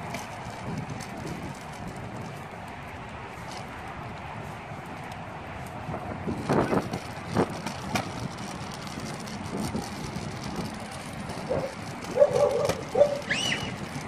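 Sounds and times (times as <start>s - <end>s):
tricycle wheels rolling on concrete: 0.0s - 14.0s
short high-pitched calls: 13.2s - 13.8s.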